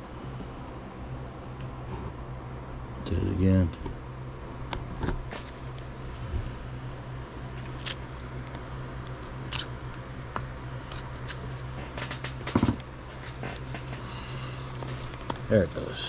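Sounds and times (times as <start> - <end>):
scissors snipping through tape: 9.0 - 9.7.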